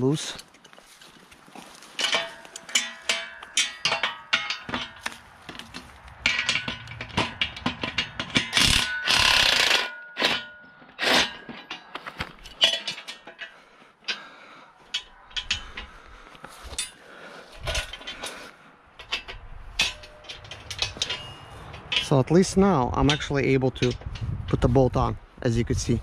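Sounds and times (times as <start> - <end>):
steel tubes clanking and scraping: 0.0 - 26.0.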